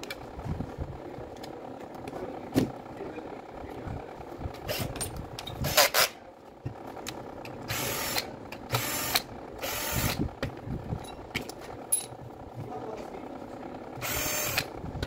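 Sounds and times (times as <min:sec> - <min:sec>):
cordless drill spinning: 0:07.6 - 0:10.4, 0:13.7 - 0:15.0.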